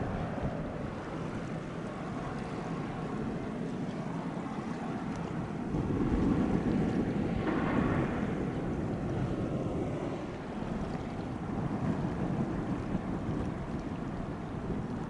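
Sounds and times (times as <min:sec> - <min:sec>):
water lapping: 0:00.0 - 0:15.0
wind rumble on microphone: 0:00.0 - 0:15.0.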